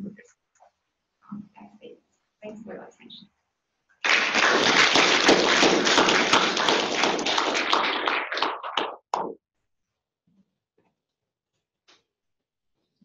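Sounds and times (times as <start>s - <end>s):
audience applauding: 4.0s - 9.3s.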